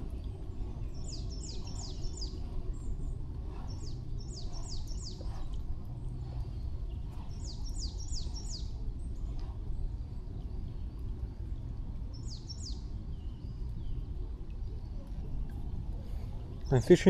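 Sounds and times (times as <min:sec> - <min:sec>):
low rush of outdoor noise: 0:00.0 - 0:17.0
small songbird calling: 0:00.8 - 0:02.9, 0:03.6 - 0:05.6, 0:06.9 - 0:08.8, 0:12.1 - 0:14.0.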